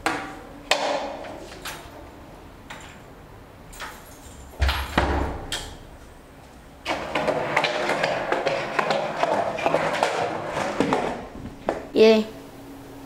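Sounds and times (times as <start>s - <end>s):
skateboard wheels rolling on tiles: 6.8s - 11.9s.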